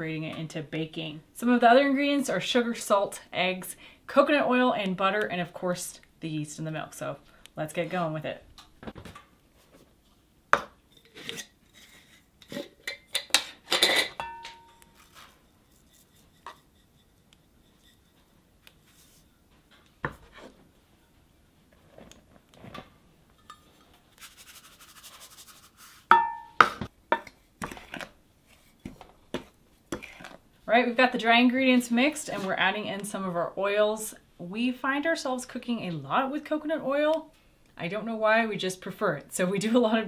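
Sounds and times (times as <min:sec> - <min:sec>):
glassware clinking: 0:13.8 - 0:15.0, 0:26.1 - 0:27.2.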